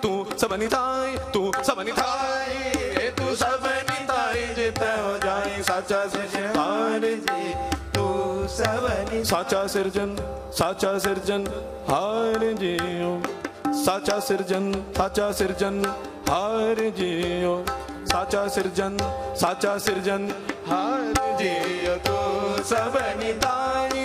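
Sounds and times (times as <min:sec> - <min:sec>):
tabla strokes: 0:00.0 - 0:24.0.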